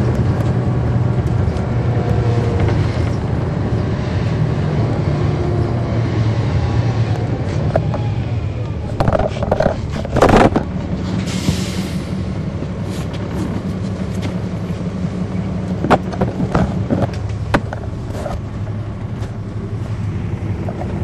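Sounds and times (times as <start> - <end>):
bus diesel engine running: 0.0 - 21.0
sharp knocks and rattles: 8.9 - 10.8.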